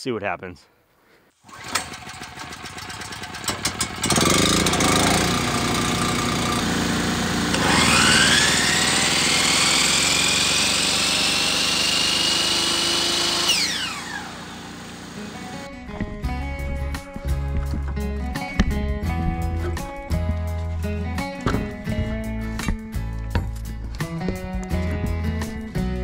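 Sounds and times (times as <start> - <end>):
machine engine running: 1.5 - 15.7
machine whine: 7.5 - 15.7.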